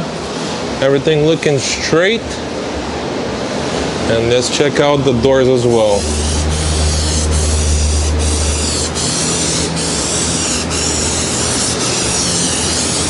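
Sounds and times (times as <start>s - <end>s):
hissing spray: 5.6s - 13.0s.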